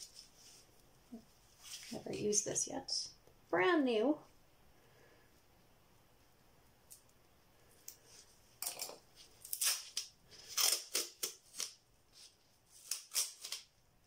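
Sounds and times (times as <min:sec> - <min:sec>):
tape ripping and crinkling: 0:08.6 - 0:13.8.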